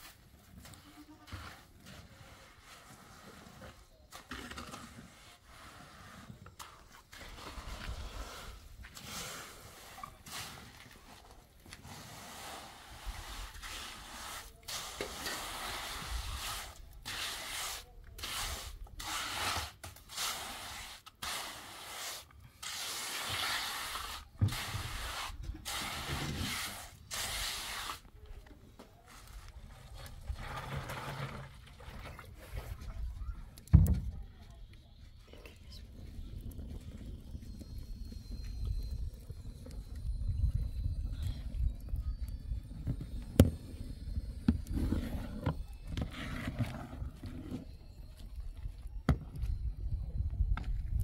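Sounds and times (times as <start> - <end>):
trowel scraping wet cement: 0.0 - 28.1, 29.1 - 33.0, 44.6 - 47.8.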